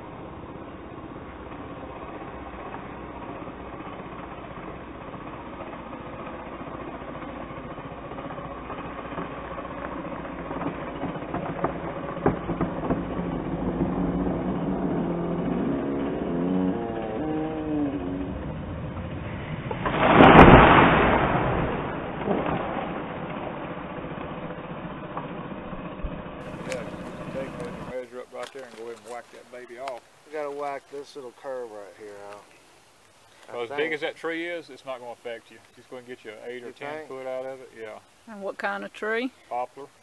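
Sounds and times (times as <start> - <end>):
tree crashing to the ground: 19.6 - 30.1
tree cracking: 19.6 - 33.7
chainsaw running: 25.8 - 30.0.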